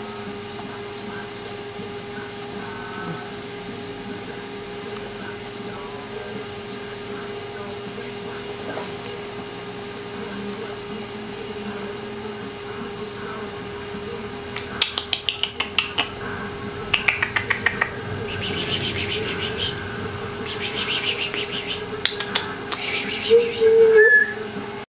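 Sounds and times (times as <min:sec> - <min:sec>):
steady hum: 0:00.0 - 0:24.9
mouth clicks: 0:14.5 - 0:19.8, 0:20.4 - 0:24.3
hissing smacks: 0:14.5 - 0:23.2.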